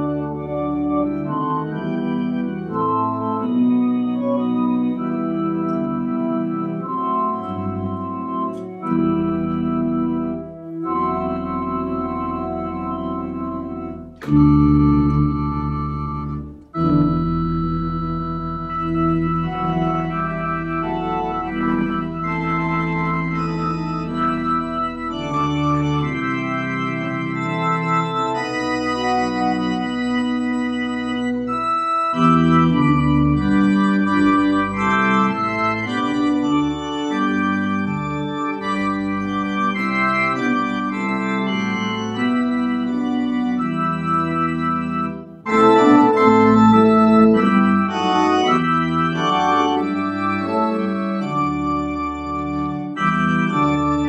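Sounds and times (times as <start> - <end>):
organ playing slow chords: 0.0 - 54.0.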